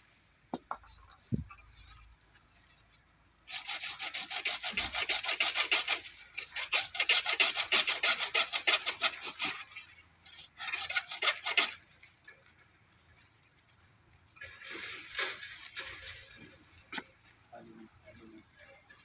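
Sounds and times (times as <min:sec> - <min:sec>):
hand saw cutting branch: 0:03.5 - 0:12.4, 0:14.4 - 0:17.3.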